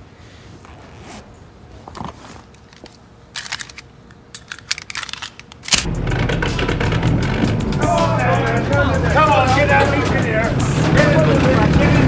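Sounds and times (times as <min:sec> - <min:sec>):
handgun clicks: 0:03.4 - 0:05.9.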